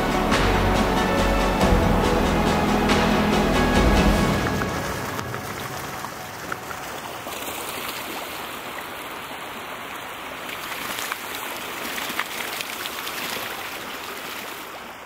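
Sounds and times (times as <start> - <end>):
rushing splashing water: 0.0 - 15.0
water drips: 3.8 - 14.8.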